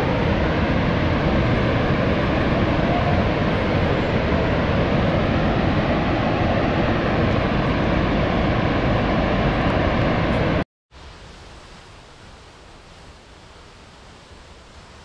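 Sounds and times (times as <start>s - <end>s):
waterfall rushing: 0.0s - 10.6s
quiet dull rush of water: 3.8s - 15.0s.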